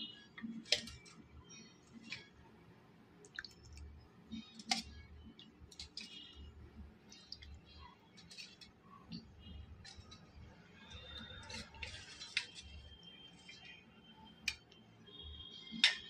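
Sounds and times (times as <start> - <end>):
spoon clinking steel bowls: 15.6 - 16.0.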